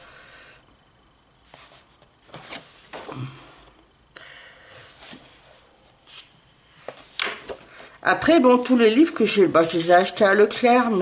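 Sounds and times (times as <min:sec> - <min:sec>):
paper pages rustling: 0:01.4 - 0:03.0.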